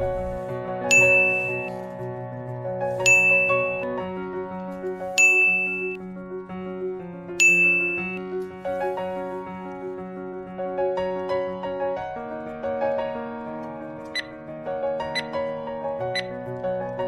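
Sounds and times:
soft background music: 0.0 - 17.0
bright ding sound effect: 0.9 - 1.7, 3.0 - 3.8, 5.2 - 6.0, 7.4 - 8.2.

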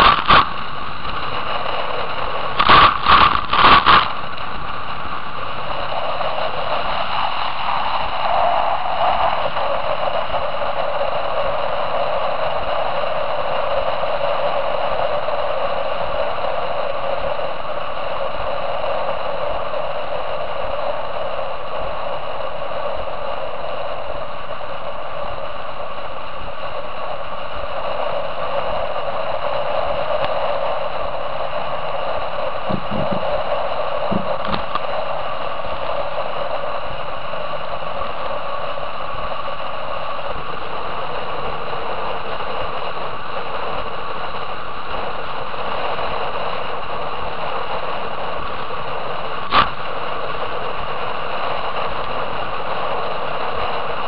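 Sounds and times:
wind and water rushing: 0.0 - 12.0
faint high whine: 0.0 - 54.0.

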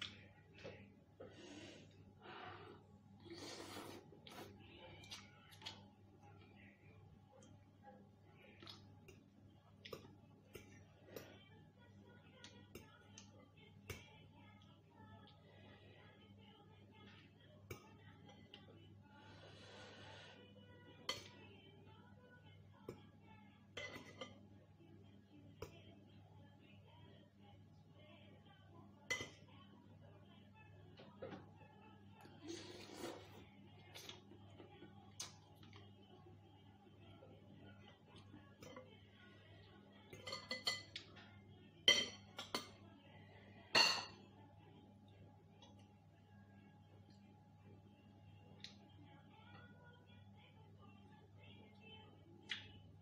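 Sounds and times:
cutlery clinking on soup bowl: 23.8 - 24.4, 40.2 - 41.1.

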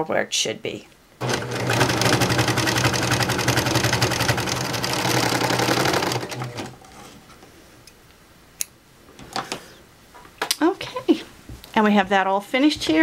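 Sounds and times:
serger sewing machine running: 1.2 - 6.8.

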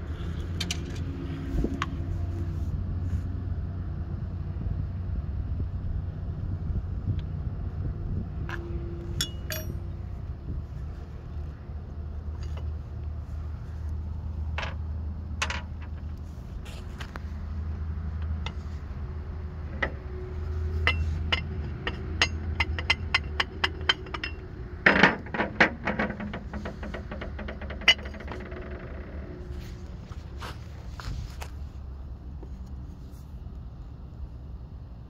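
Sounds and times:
steady low rumble: 0.0 - 35.0
short metallic clatter: 8.5 - 10.0.

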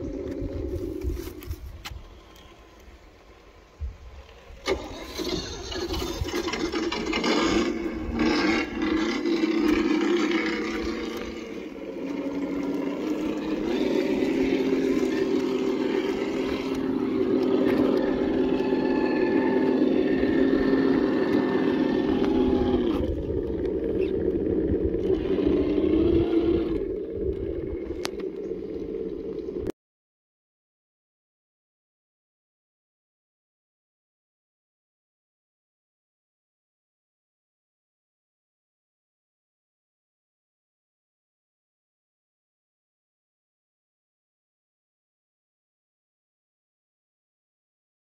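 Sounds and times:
toy car electric motor whining: 4.6 - 28.3.

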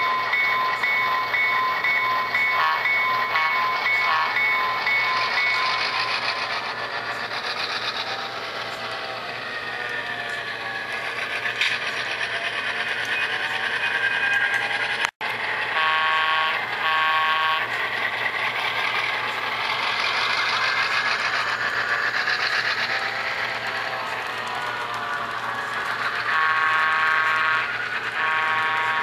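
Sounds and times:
model train wheels rolling: 0.0 - 29.0
model train horn blasts: 15.7 - 17.8, 26.3 - 29.0.

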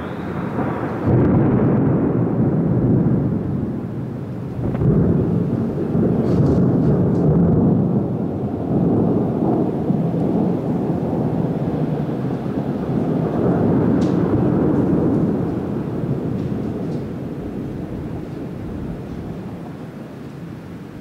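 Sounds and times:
thunder rumbling: 0.0 - 21.0.

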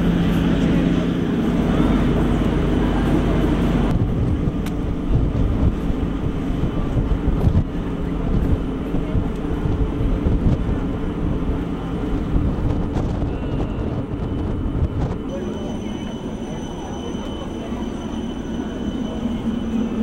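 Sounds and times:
wind buffeting microphone: 1.2 - 15.3.

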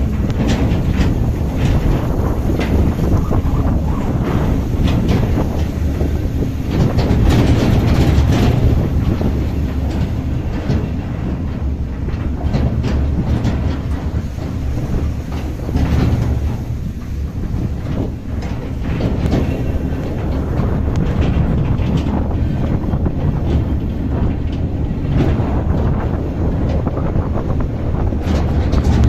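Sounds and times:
engine and tyres rumbling: 0.0 - 29.0
vehicle body knocking and rattling: 0.0 - 29.0.

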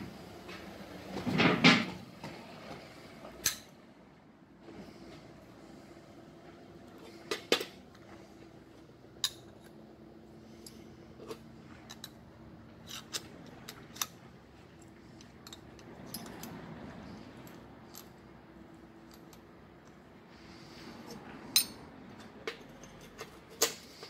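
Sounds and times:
faint steady hum: 0.0 - 24.0
metal parts clinking and knocking: 10.5 - 12.2, 12.8 - 14.2, 15.2 - 18.2, 19.0 - 19.5, 21.5 - 24.0.

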